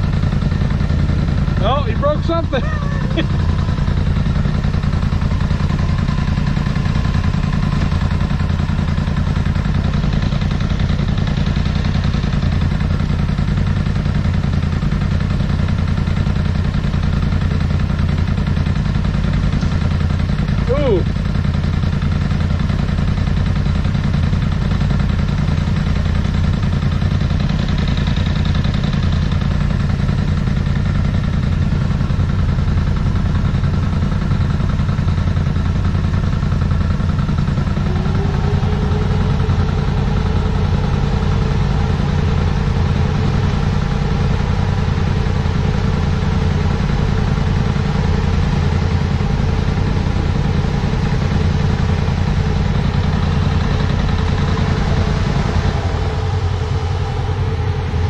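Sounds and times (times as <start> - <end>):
higher steady hum: 0.0 - 13.5, 35.9 - 58.0
utility vehicle engines idling: 0.0 - 58.0.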